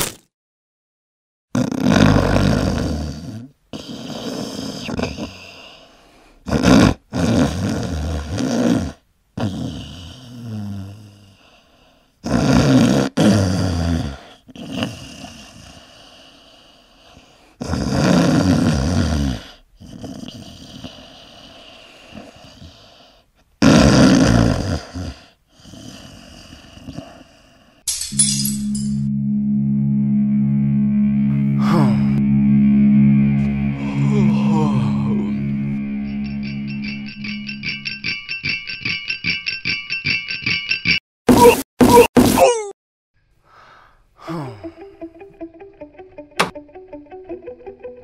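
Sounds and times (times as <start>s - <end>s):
loud snoring: 1.5s - 5.8s, 6.4s - 11.4s, 12.2s - 16.1s, 17.6s - 22.8s, 23.6s - 27.4s, 31.5s - 32.2s.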